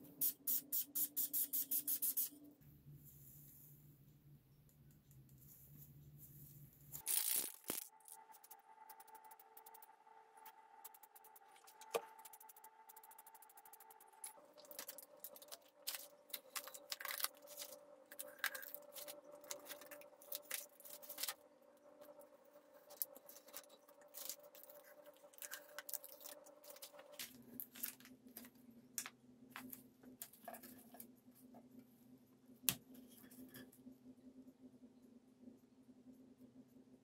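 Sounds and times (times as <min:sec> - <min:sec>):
low steady hum: 0:00.0 - 0:37.0
small parts clicking: 0:07.0 - 0:09.9.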